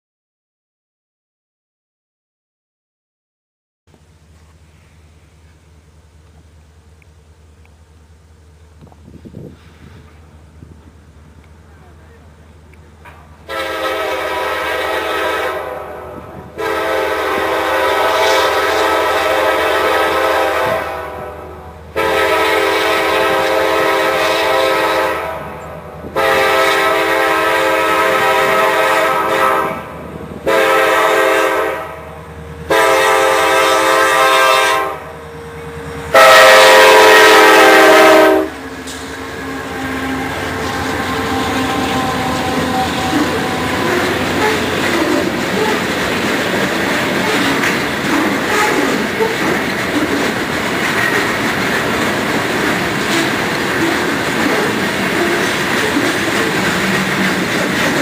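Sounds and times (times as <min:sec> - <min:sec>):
freight cars rumbling and clattering: 0:04.0 - 0:13.5, 0:38.5 - 0:58.0
locomotive air horn blasts: 0:13.4 - 0:38.6, 0:39.4 - 0:45.8, 0:48.1 - 0:49.3.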